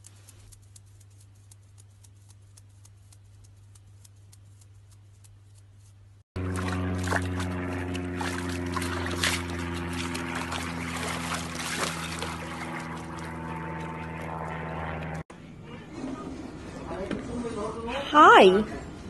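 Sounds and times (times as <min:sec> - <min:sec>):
steady low hum: 0:00.0 - 0:18.0
water splashing in paddling pool: 0:06.4 - 0:13.4.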